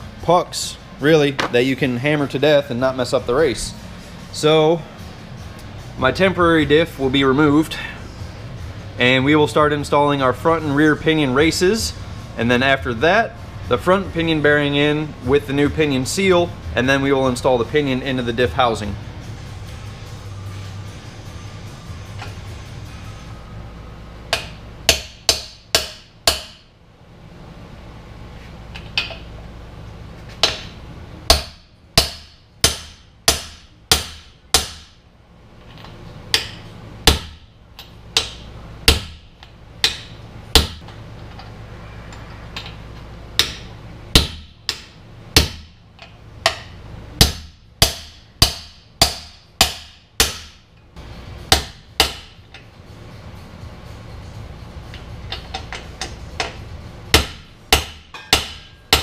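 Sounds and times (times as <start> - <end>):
hammer striking metal: 24.3 - 26.7, 30.4 - 35.0, 36.3 - 39.2, 39.8 - 40.8, 43.4 - 45.8, 46.4 - 50.6, 51.5 - 52.4, 55.3 - 59.0.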